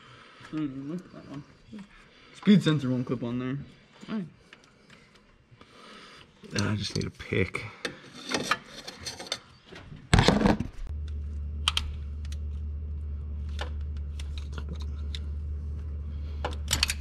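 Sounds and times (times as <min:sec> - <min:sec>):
steady low hum: 0:10.8 - 0:17.0.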